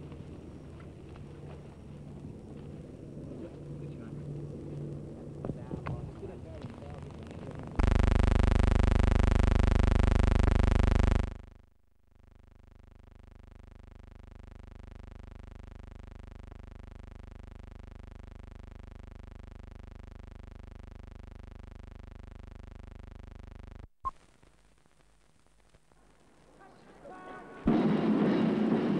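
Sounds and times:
steady buzzing tone: 0:03.8 - 0:25.8.

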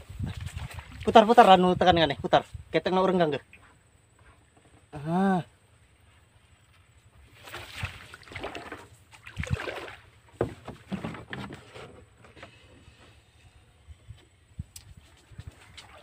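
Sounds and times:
water splashing around boat: 0:00.2 - 0:01.6, 0:07.2 - 0:11.9, 0:15.1 - 0:16.0.

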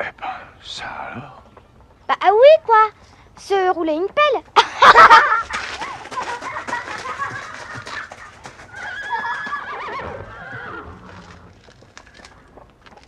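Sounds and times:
hooves clopping: 0:01.1 - 0:13.0
horse whinnying: 0:08.6 - 0:11.7.

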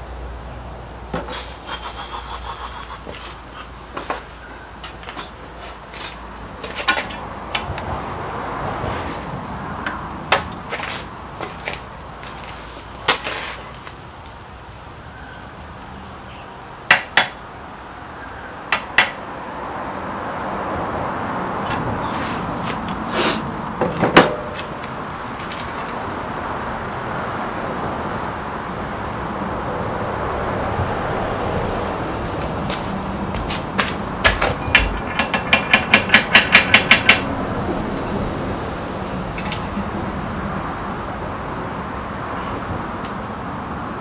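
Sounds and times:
steady background hiss: 0:00.0 - 0:44.0
steel clinking and knocking: 0:04.0 - 0:05.4, 0:06.0 - 0:07.7, 0:33.4 - 0:37.3.

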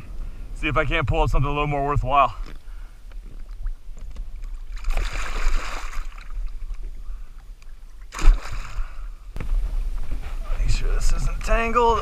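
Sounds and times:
water splashing and sloshing: 0:01.3 - 0:10.4.

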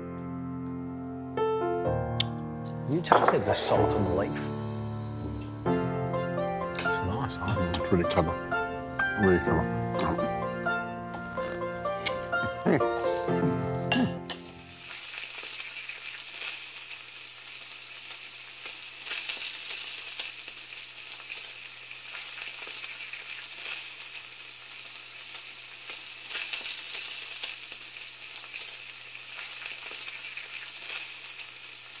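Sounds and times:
food sizzling in a pan: 0:03.1 - 0:05.8, 0:06.8 - 0:08.3, 0:13.9 - 0:32.0.

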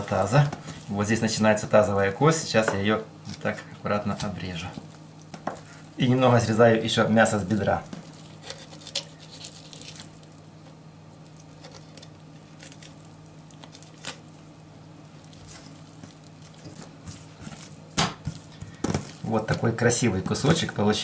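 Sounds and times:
steady low hum: 0:00.0 - 0:21.0
wet squishing and tearing of meat: 0:04.2 - 0:06.1, 0:07.1 - 0:19.8.

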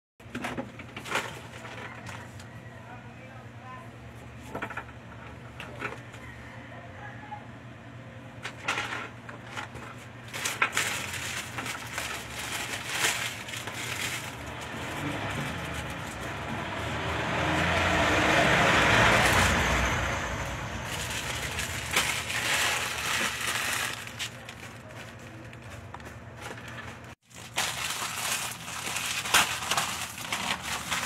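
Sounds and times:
plastic bags and packages rustling: 0:00.2 - 0:02.6, 0:08.5 - 0:31.0.

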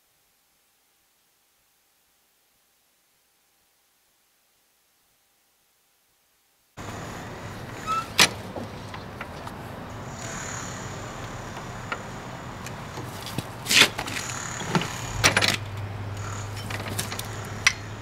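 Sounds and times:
steady low hum: 0:06.8 - 0:18.0
metallic clacks and knocks: 0:13.0 - 0:18.0.

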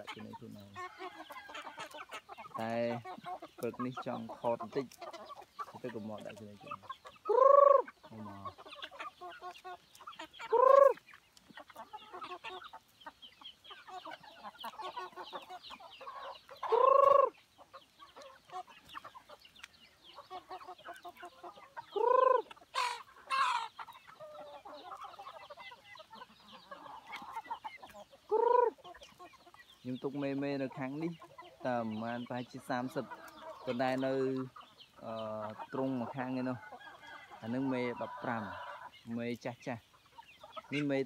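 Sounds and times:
harsh chicken squawk: 0:00.0 - 0:19.4, 0:20.1 - 0:29.6, 0:30.8 - 0:39.3, 0:40.2 - 0:41.0
chickens clucking: 0:00.0 - 0:41.0
loud arching chicken calls: 0:00.0 - 0:41.0.

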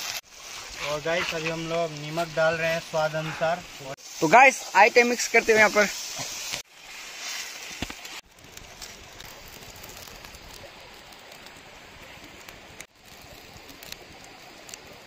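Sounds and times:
curry simmering with hiss: 0:00.0 - 0:15.0
wood fire crackling: 0:00.0 - 0:15.0.

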